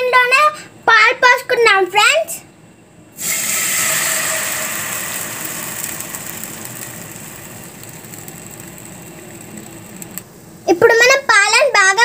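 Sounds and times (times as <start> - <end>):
milk sizzling in a pan: 3.2 - 10.3.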